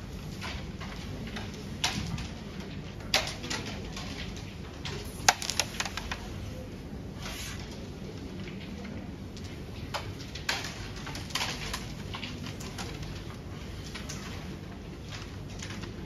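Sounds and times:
striker cracking into pieces: 5.2s - 6.2s
game pieces clicking rattle: 5.3s - 6.2s.

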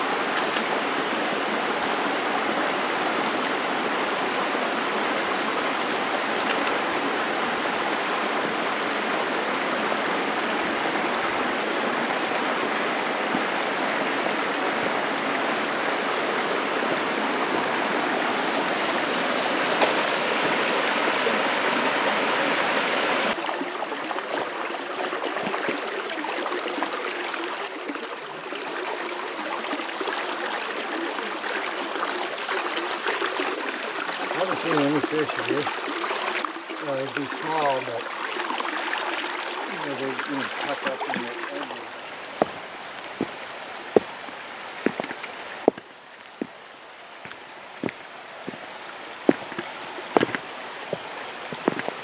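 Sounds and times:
creek and waterfall running: 0.0s - 52.0s.

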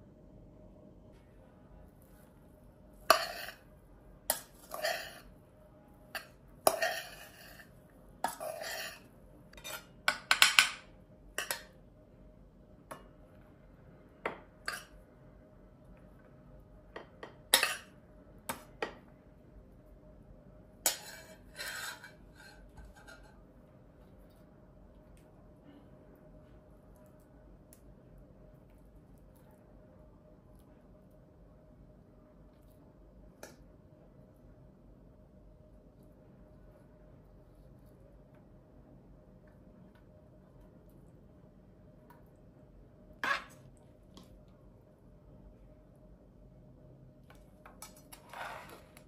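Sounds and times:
metal spoon scraping a pot: 3.1s - 3.6s, 4.3s - 5.3s, 6.2s - 10.6s, 20.8s - 23.4s, 48.1s - 49.0s.

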